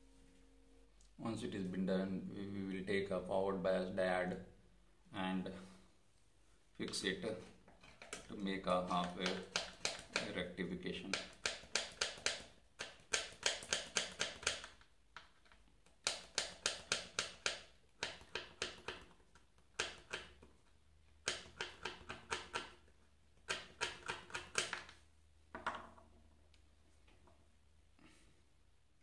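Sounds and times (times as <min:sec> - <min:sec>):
sharp metallic clicks and scratches: 0:07.7 - 0:10.4.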